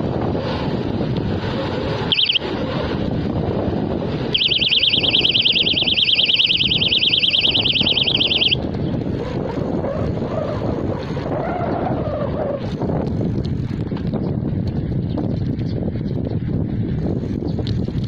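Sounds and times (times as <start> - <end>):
wind noise on microphone: 0.0 - 18.0
electronic bicycle horn warbling: 2.1 - 2.4, 4.4 - 8.6.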